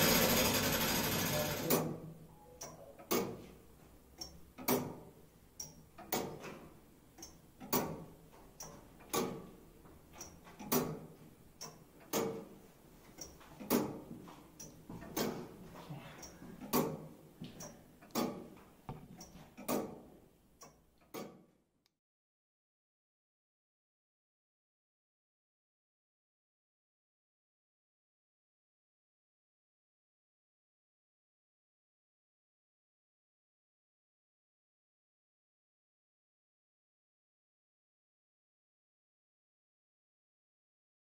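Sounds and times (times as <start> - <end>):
winding gear whirring: 0.0 - 1.7.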